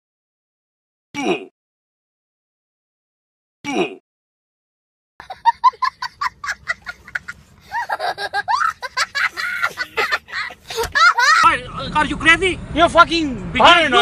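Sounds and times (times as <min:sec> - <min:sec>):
boy laughing hysterically: 0:05.2 - 0:11.6.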